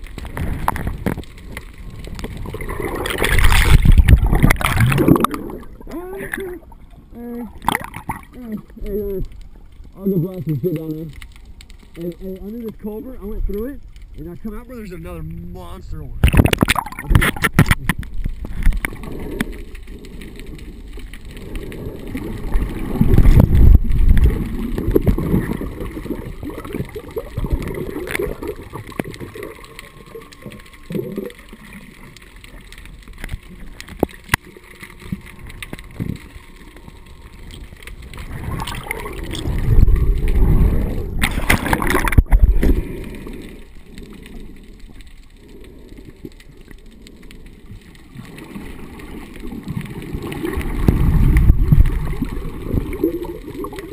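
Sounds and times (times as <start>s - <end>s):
underwater sloshing and gurgling: 0.0s - 53.9s.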